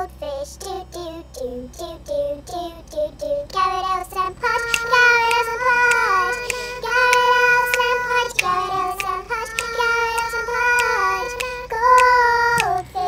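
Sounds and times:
child singing: 0.0s - 13.0s
sharp clicks: 2.9s - 13.0s.

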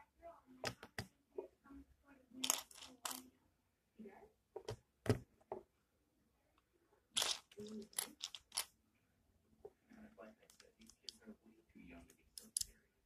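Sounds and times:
plastic bricks clicking and rattling: 2.4s - 3.2s, 7.2s - 8.7s.

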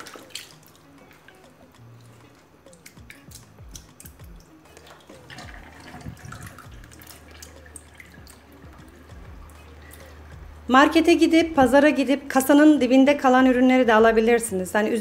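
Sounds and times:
light water sloshing: 0.0s - 10.5s
water dripping and splashing: 0.0s - 10.6s.

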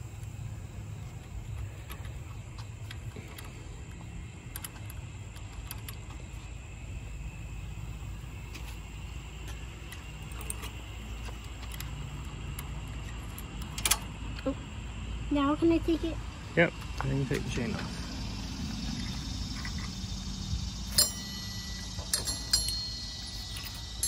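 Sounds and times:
low steady rumble: 0.0s - 24.0s
metal chain clicks and clinks: 20.9s - 24.0s.

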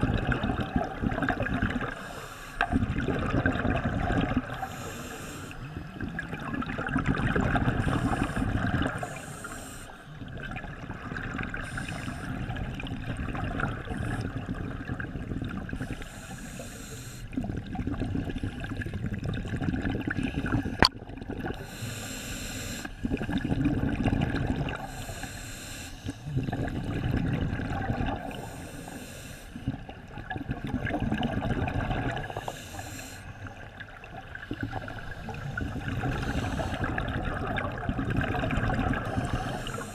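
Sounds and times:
exhaled bubbles rumbling: 0.0s - 4.7s, 5.6s - 9.2s, 10.1s - 16.2s, 17.3s - 21.7s, 23.0s - 25.0s, 26.2s - 28.5s, 29.6s - 32.6s, 33.3s - 39.9s
diver breathing through regulator: 1.9s - 2.8s, 4.5s - 5.9s, 7.7s - 10.2s, 11.6s - 12.5s, 15.8s - 17.4s, 21.6s - 23.1s, 24.8s - 26.8s, 28.2s - 29.7s, 32.1s - 33.6s, 34.6s - 37.3s, 39.0s - 39.9s.

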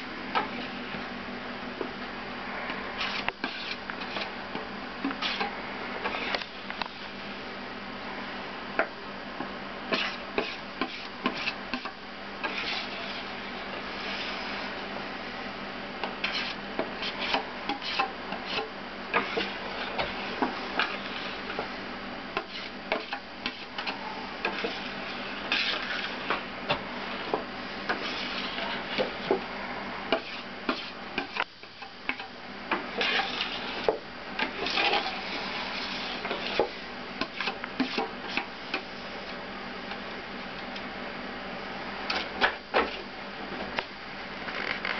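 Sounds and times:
spatula scraping chocolate in bowl: 3.0s - 4.4s, 5.1s - 6.5s, 9.9s - 14.5s, 16.2s - 21.6s, 22.3s - 26.4s, 27.8s - 29.2s, 30.1s - 32.3s, 32.9s - 38.9s.

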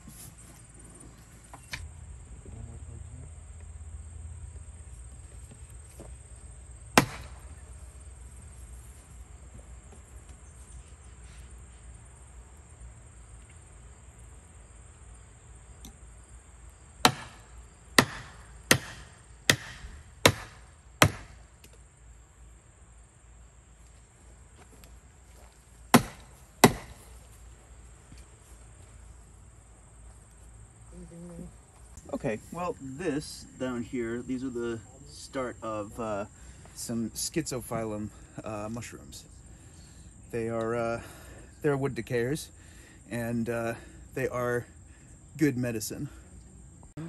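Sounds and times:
insects chirring: 0.0s - 47.0s
hammer striking wood: 7.0s - 7.4s, 17.0s - 21.4s, 25.9s - 27.0s.

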